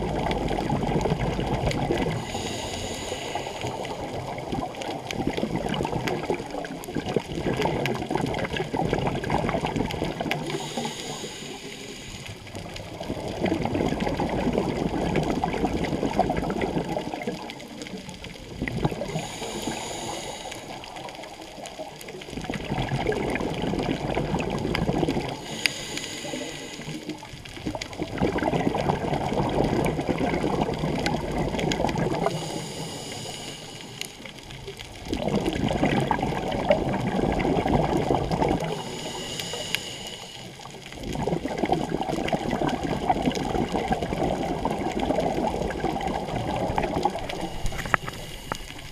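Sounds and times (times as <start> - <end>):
exhaled bubbles gurgling: 0.0 - 48.9
hissing regulator inhalation: 2.0 - 4.2, 10.4 - 12.7, 18.9 - 21.3, 25.3 - 27.3, 32.2 - 34.3, 38.6 - 40.8, 47.1 - 48.9.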